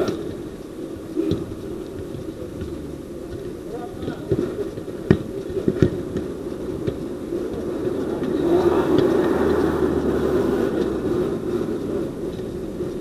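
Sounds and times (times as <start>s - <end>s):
vehicle passing: 7.9s - 13.0s.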